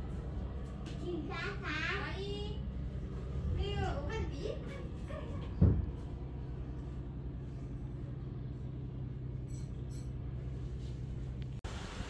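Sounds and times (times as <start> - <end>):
ship machinery hum: 0.0 - 12.0
low thump: 5.6 - 6.0.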